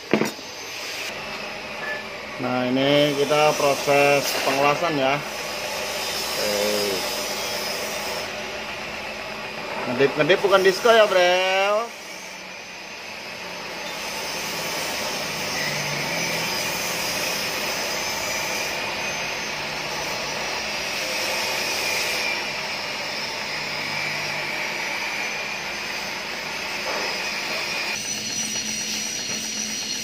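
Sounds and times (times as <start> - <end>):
welding arc hissing: 2.4 - 9.4, 13.6 - 30.0.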